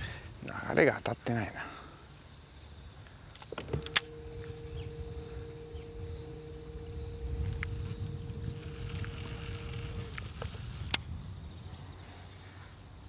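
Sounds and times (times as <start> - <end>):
high-pitched insect drone: 0.0 - 13.0
low hum: 3.6 - 12.2.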